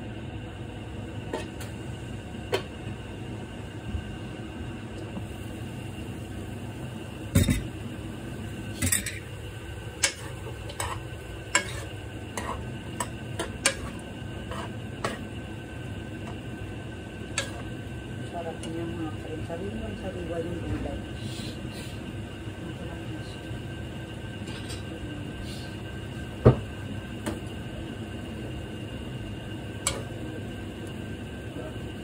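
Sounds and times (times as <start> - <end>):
low hiss from pan and burner: 0.0 - 32.0
utensil scraping a pan: 10.0 - 15.3.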